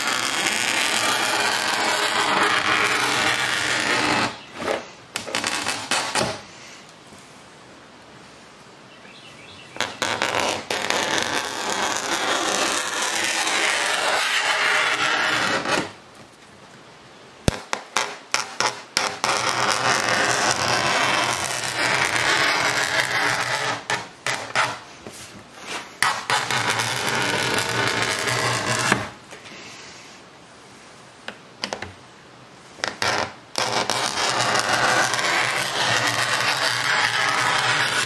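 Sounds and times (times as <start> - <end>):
knife scraping acrylic sheet: 0.0 - 6.5, 9.8 - 16.0, 17.5 - 29.1, 32.8 - 38.0.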